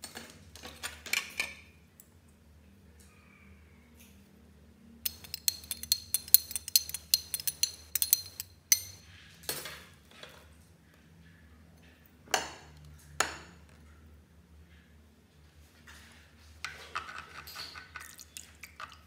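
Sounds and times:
spoon clinking against glass: 5.0s - 9.0s.

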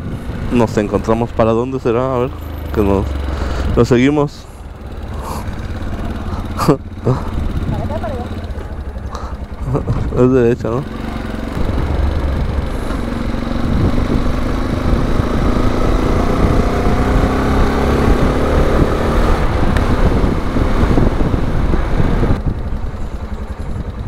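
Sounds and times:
wind noise on microphone: 0.0s - 0.6s, 11.5s - 24.0s
motorcycle engine running: 0.0s - 24.0s.

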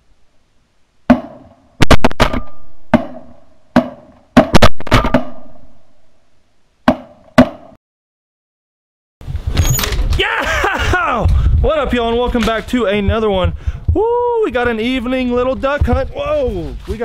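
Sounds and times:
shotgun blasts: 1.1s - 5.8s.

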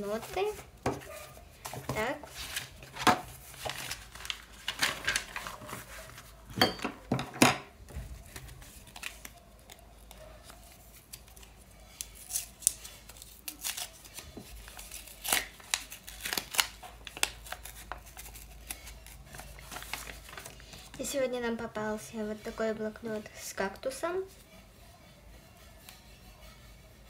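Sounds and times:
pages turning: 0.1s - 6.5s, 8.1s - 9.8s, 10.4s - 21.0s
paper packet tearing and crinkling: 1.8s - 6.4s, 8.2s - 9.8s, 10.4s - 21.0s.

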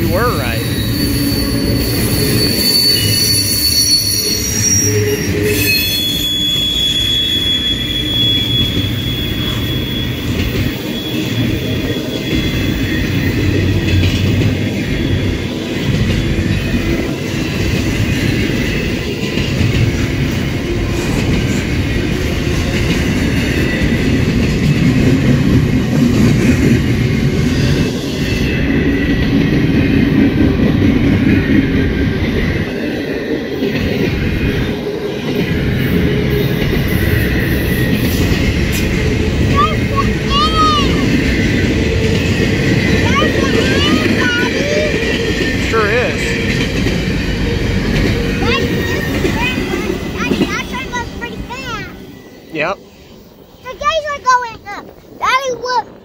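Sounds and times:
train wheels rumbling on rail: 0.0s - 56.0s
high-pitched wheel squeals: 0.2s - 13.5s.

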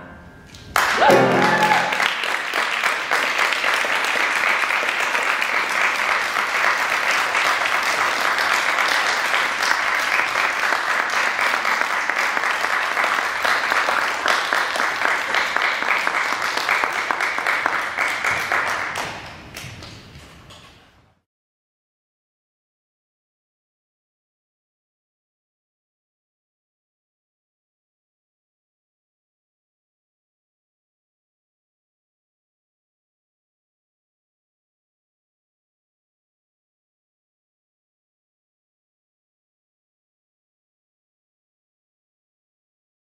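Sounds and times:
audience applauding: 0.7s - 19.6s.

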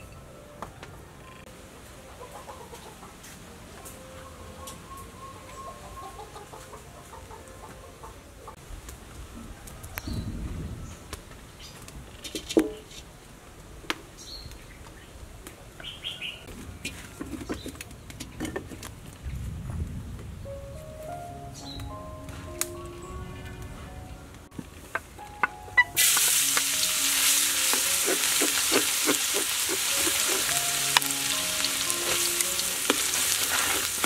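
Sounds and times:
chickens: 1.8s - 8.6s
birds chirping: 21.2s - 24.3s.

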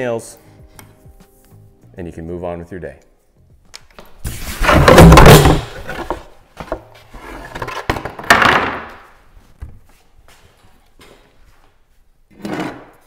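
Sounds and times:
board slammed down on workbench: 4.3s - 6.2s, 7.9s - 9.0s.

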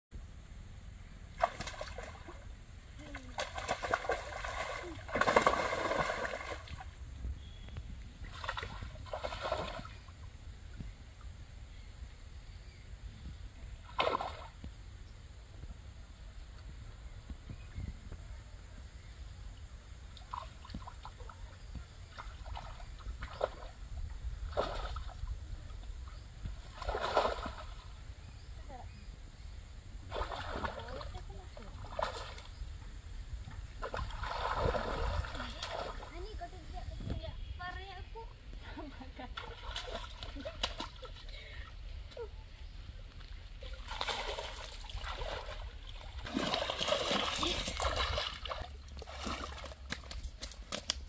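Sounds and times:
muddy water splashing: 1.3s - 7.0s, 8.1s - 10.4s, 13.8s - 14.6s, 20.1s - 28.0s, 30.0s - 32.6s, 33.6s - 51.0s
steady low rumble: 30.8s - 39.5s.

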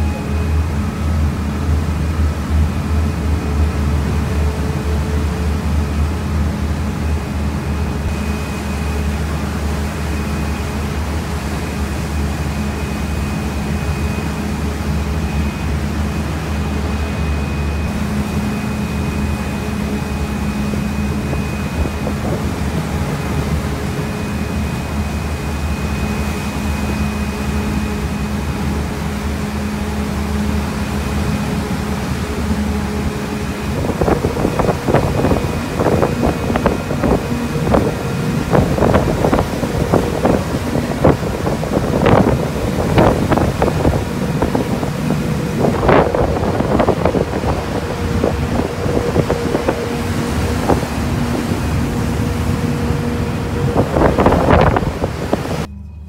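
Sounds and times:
ferry engine humming: 0.0s - 56.0s
wind noise on microphone: 12.5s - 55.8s.

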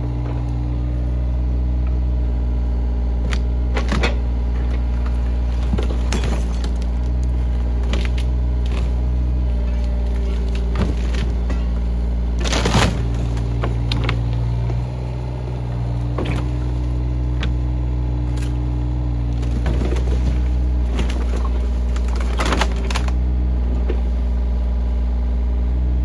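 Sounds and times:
diesel engine running: 0.0s - 26.0s
wood breaking with sharp cracks: 5.1s - 11.6s, 12.4s - 14.5s, 19.3s - 23.2s.

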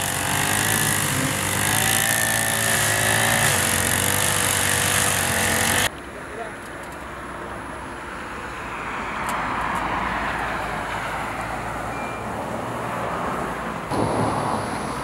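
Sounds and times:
rush of outdoor noise: 0.0s - 15.0s
road vehicle passing: 7.9s - 15.0s.

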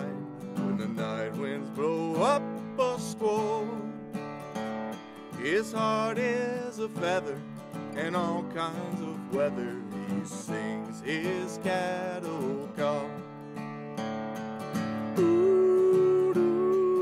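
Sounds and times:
acoustic guitar strumming: 0.0s - 17.0s
person yodeling: 15.2s - 17.0s.

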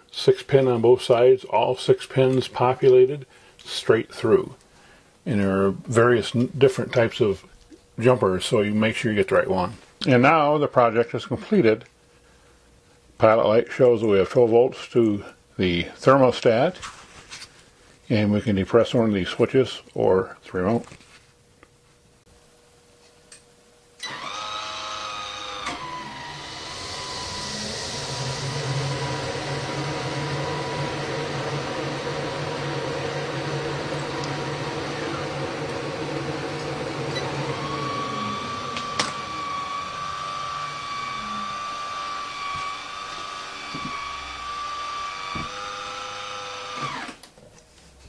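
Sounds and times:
vent fan motor whine: 0.0s - 48.0s
fan rushing air: 25.6s - 46.0s.

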